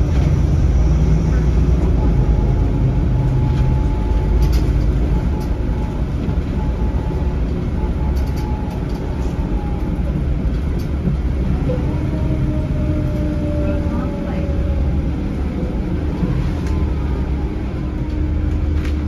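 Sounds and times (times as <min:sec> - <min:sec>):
bus diesel engine rumble: 0:00.0 - 0:19.0.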